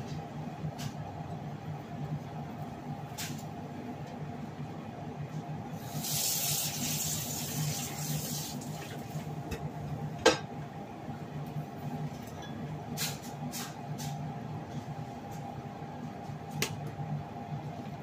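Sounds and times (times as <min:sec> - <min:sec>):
gas burner hiss: 0:05.8 - 0:08.6.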